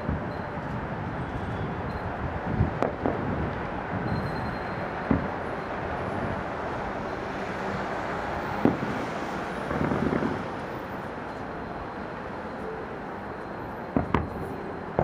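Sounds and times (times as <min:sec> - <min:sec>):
city noise rumble: 0:00.0 - 0:15.0
distant fireworks bangs: 0:02.5 - 0:06.5, 0:08.4 - 0:10.6, 0:13.9 - 0:15.0.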